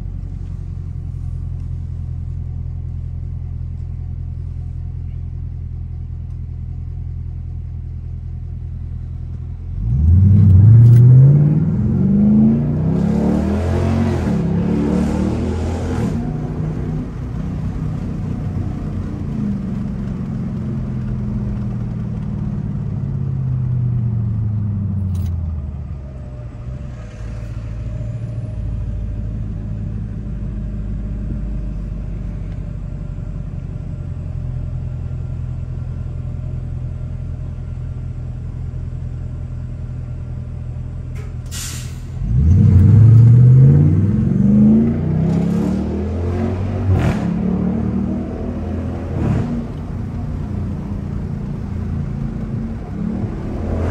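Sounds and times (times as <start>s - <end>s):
car engine revving and idling: 0.0s - 41.2s, 42.1s - 53.9s.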